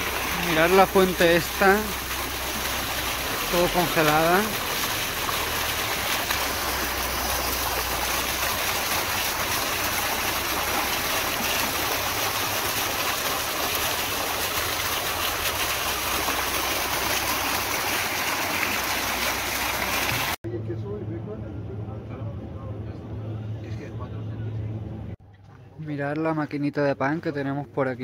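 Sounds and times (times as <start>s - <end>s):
fountain water splashing: 0.0s - 20.4s.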